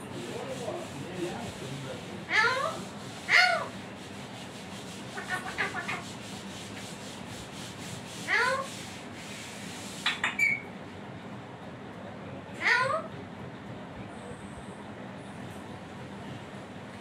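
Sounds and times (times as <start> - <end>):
parakeet chattering: 2.2 - 3.8, 5.1 - 6.2
parakeet calling: 2.3 - 3.8, 5.1 - 6.1, 10.1 - 10.7.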